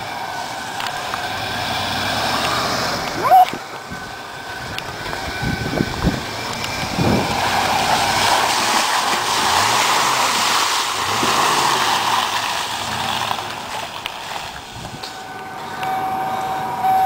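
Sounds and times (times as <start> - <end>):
engine revving: 0.0 - 16.9
tyres churning through mud: 0.0 - 17.0.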